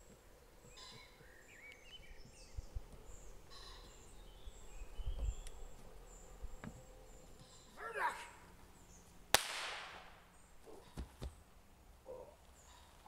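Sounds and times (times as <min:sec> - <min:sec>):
small birds chirping: 0:00.0 - 0:09.3, 0:10.1 - 0:13.0
low thumps and rumbles: 0:04.3 - 0:05.8.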